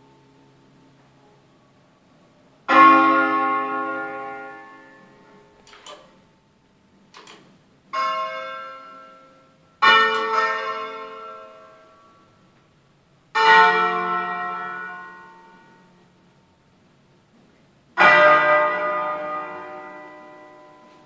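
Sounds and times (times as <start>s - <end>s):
church bell strokes: 2.7s - 5.5s, 8.0s - 12.2s, 13.4s - 15.9s, 18.0s - 21.0s.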